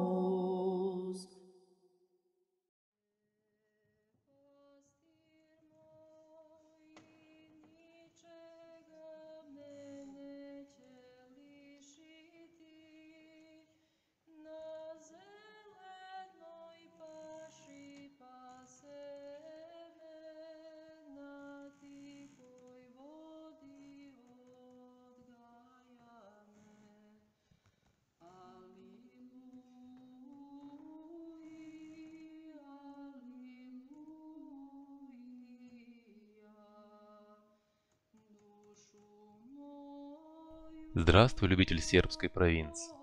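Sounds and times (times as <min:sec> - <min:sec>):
woman singing unaccompanied: 0:00.0 - 0:01.4, 0:28.3 - 0:37.4, 0:38.3 - 0:40.8.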